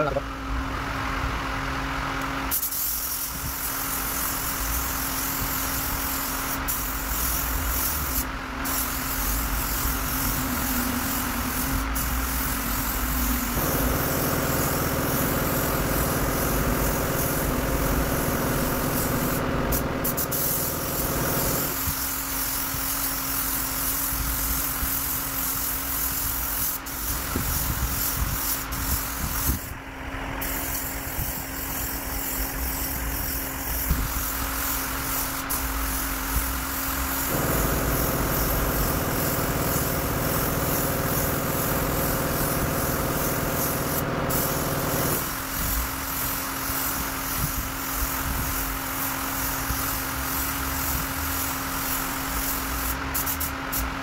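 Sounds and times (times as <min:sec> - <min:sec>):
spray gun hissing: 0:02.5 - 0:29.8, 0:30.4 - 0:54.0
steady low hum: 0:07.3 - 0:23.8, 0:29.5 - 0:45.3.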